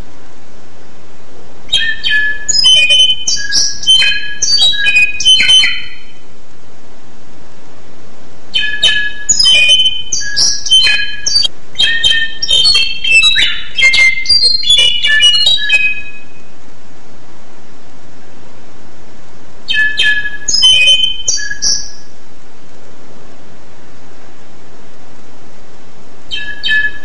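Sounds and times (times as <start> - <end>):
steady hiss: 0.0 - 26.3
songbird singing: 1.7 - 6.3, 8.5 - 16.6, 19.6 - 22.2, 26.3 - 27.0.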